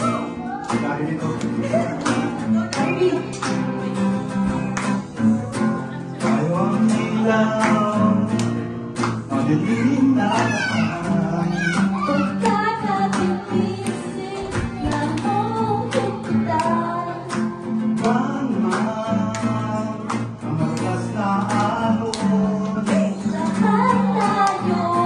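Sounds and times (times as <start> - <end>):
acoustic guitar strumming: 0.0 - 25.0
women singing: 1.7 - 4.7, 9.4 - 17.6, 22.8 - 25.0.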